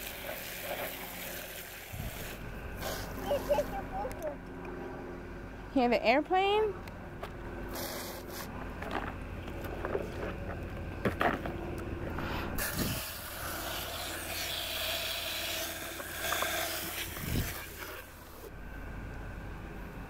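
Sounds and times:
hose nozzle spraying water on plastic: 0.0 - 3.8, 7.7 - 8.5, 12.6 - 18.5.

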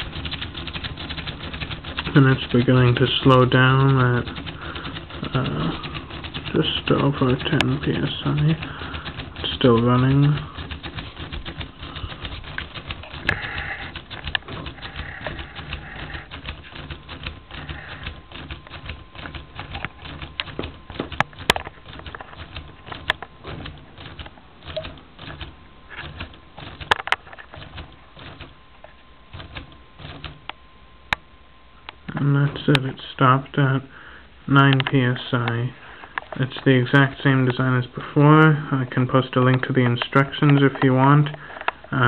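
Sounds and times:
plastic engine clicking clatter: 0.0 - 28.6.

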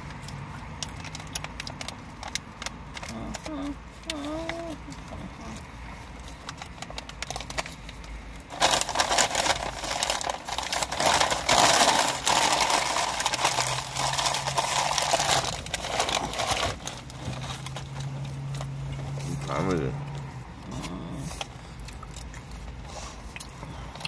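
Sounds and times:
paper crinkling and rustling: 1.0 - 19.4.

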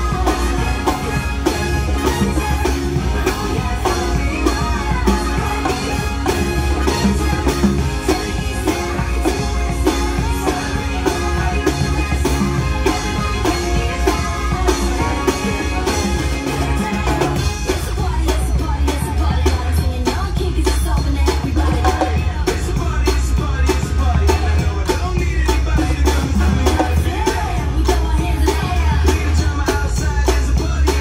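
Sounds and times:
singing: 0.0 - 31.0
steady drum beat: 0.0 - 31.0.

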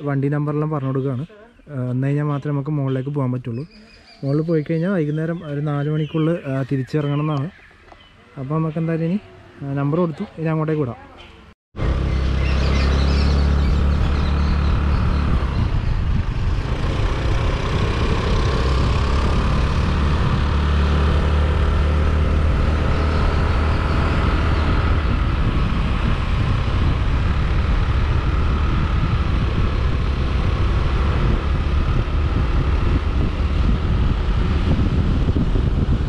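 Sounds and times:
scooter engine running: 11.8 - 36.0
wind buffeting microphone: 12.0 - 36.0.

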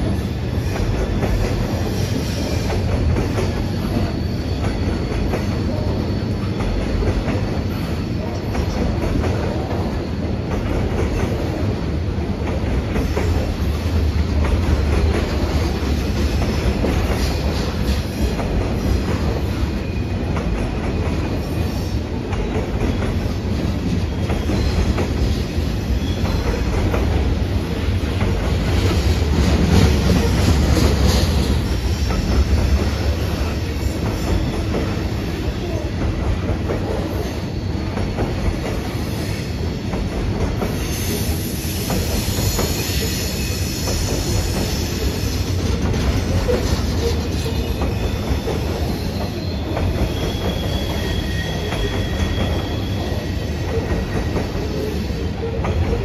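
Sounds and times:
train wheels rumbling on rail: 0.0 - 56.0
wheel squeal: 46.2 - 55.1.

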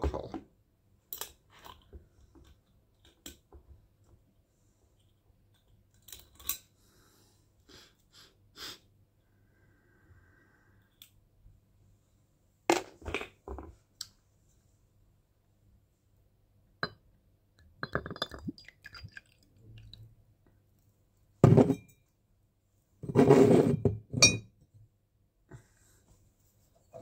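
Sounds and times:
glass bottle clinks and clicks: 17.8 - 19.2, 24.2 - 24.5.

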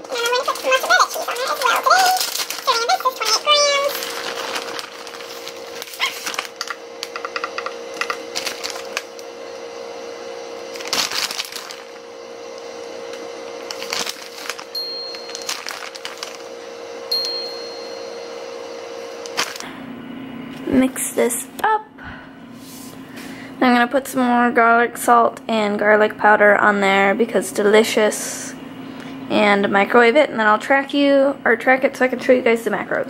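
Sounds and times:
plastic bag crinkling: 0.0 - 7.4, 8.0 - 9.2, 10.7 - 12.1, 13.6 - 16.6, 19.2 - 19.7
steady hum: 0.0 - 33.0.

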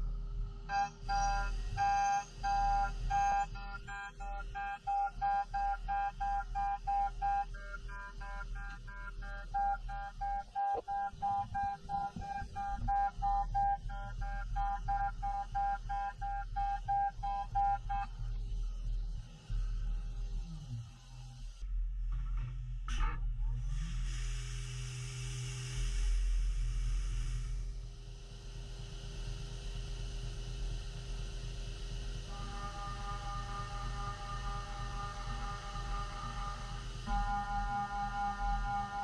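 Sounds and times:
low machine hum: 0.0 - 39.0
milling machine whine: 32.3 - 39.0.

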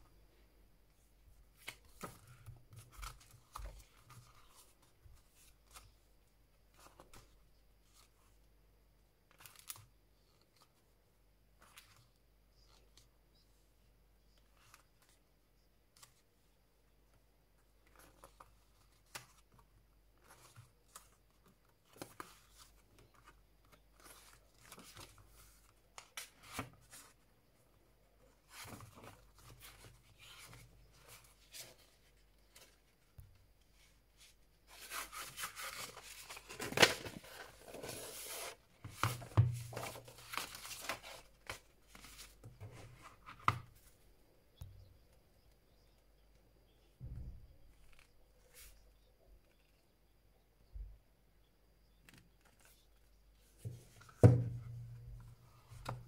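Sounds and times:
pages turning and rustling: 1.5 - 6.1, 9.3 - 10.9, 17.8 - 43.9, 52.1 - 54.2.

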